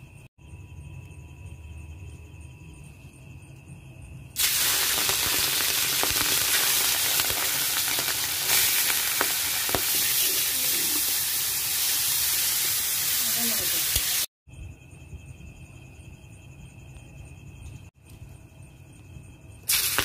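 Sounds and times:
prawns sizzling in hot oil: 4.4 - 14.3, 19.7 - 20.0.

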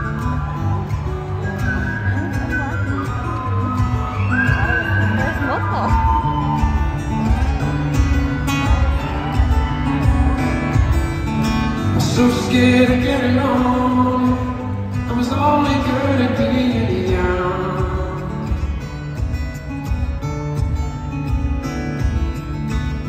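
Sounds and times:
fingerstyle acoustic guitar: 0.0 - 23.0
man singing: 11.9 - 18.8.

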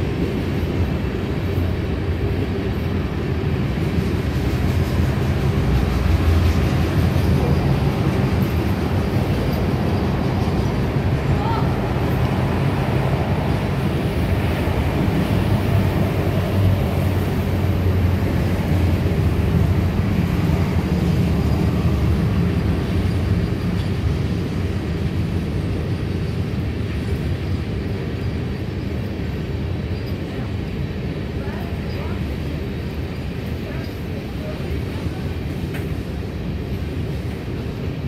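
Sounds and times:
freight train rumbling past: 0.0 - 38.0
highway traffic passing: 0.0 - 38.0.

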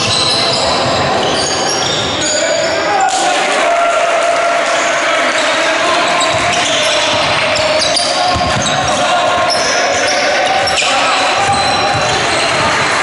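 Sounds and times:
shoe squeaks: 0.0 - 3.1, 6.1 - 12.7
basketball bouncing on wooden court: 6.2 - 9.6, 11.4 - 13.0.

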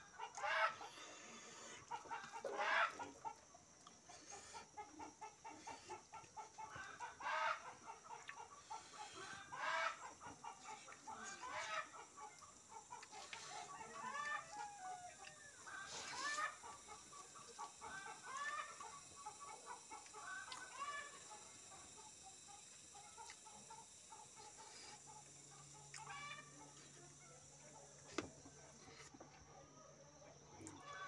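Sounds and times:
loud chicken calls: 0.0 - 3.4, 4.3 - 21.5, 23.0 - 26.8, 30.7 - 31.0
chickens clucking: 0.0 - 31.0.

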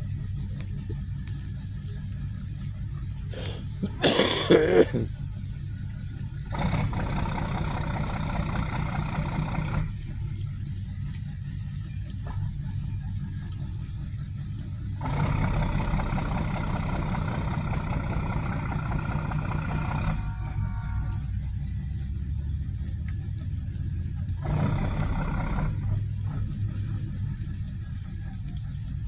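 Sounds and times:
idling engine hum: 0.0 - 29.0
hiss: 3.2 - 4.6.

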